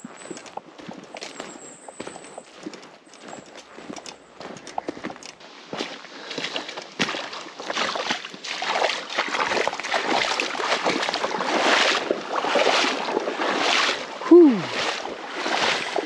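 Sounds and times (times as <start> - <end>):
water splashing around wading legs: 5.7 - 16.0.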